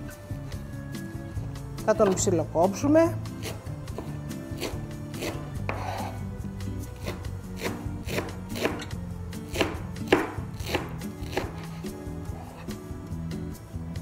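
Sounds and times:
background music: 0.0 - 14.0
knife chopping herbs: 3.3 - 6.2, 6.8 - 12.8.

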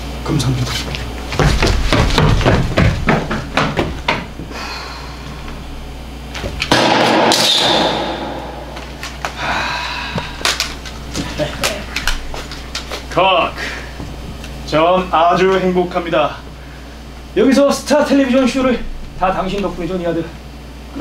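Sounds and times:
sharp knocks and bangs: 1.4 - 4.4, 6.7 - 9.2.

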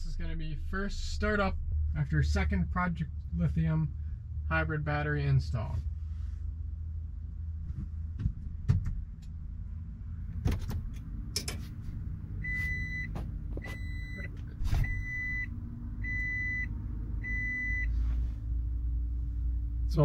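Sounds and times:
low hum: 0.0 - 20.0
car warning chime beeping: 12.4 - 17.9.

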